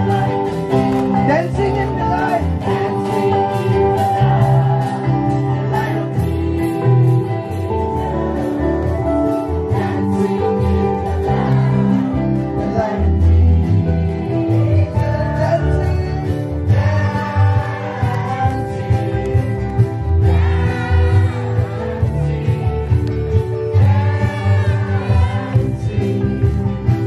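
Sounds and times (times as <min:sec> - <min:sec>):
strummed guitar: 0:00.0 - 0:27.0
drum beat and bass: 0:16.5 - 0:27.0.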